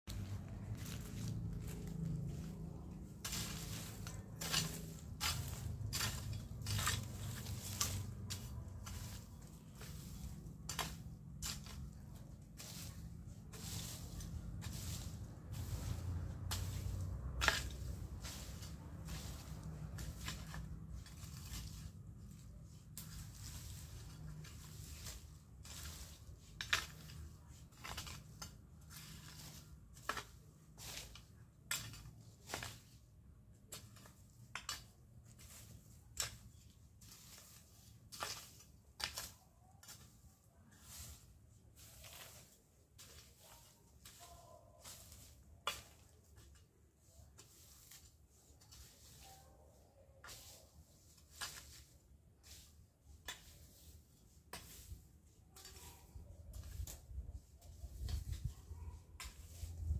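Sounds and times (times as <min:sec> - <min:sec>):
hoe striking ground: 0:00.1 - 0:22.4, 0:23.0 - 0:33.0, 0:33.7 - 0:40.2, 0:44.8 - 0:46.2
hoe chopping into dry soil: 0:03.3 - 0:11.8, 0:16.6 - 0:21.8.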